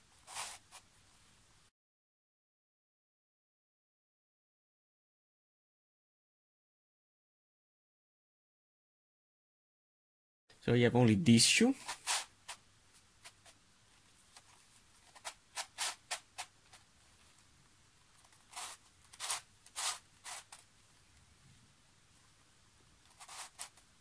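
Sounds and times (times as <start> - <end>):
plastic puzzle scraping and clicking: 23.0 - 23.9.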